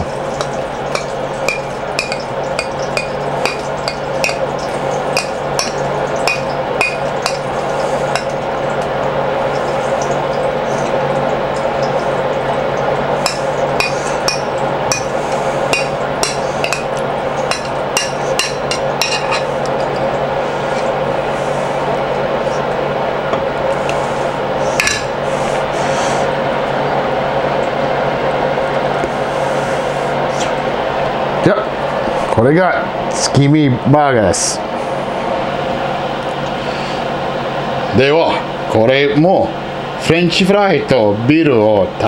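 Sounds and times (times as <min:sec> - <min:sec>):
steady hum: 0:00.0 - 0:42.0.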